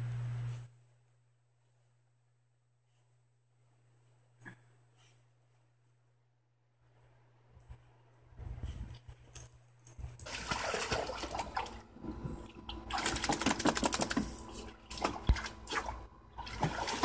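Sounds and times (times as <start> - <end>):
water splashing: 10.2 - 11.8, 12.9 - 17.0.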